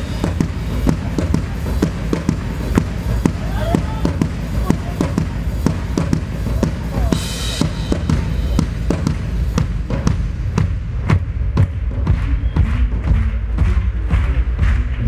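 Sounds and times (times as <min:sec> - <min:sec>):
sharp drum strokes: 0:00.0 - 0:14.9.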